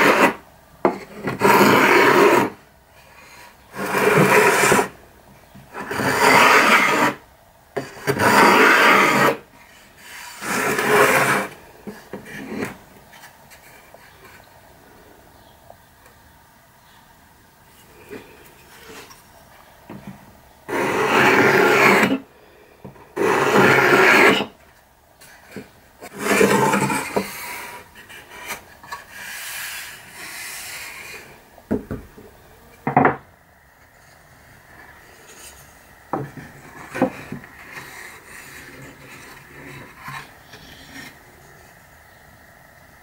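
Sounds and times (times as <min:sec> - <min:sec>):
hand plane shaving wood: 0:00.0 - 0:02.6, 0:03.2 - 0:05.0, 0:05.7 - 0:07.2, 0:07.8 - 0:12.8, 0:20.7 - 0:22.2, 0:23.2 - 0:24.6, 0:25.4 - 0:31.4, 0:34.8 - 0:41.3.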